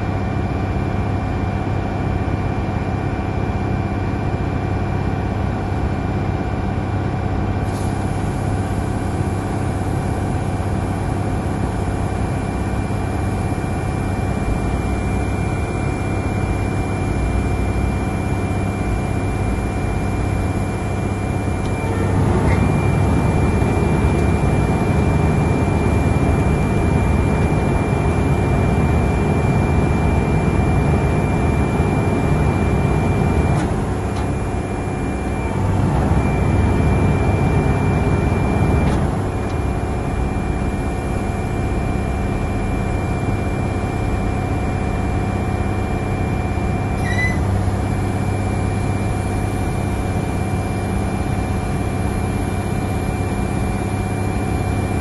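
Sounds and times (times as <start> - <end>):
diesel engine running: 0.0 - 55.0
thin high whine: 13.5 - 55.0.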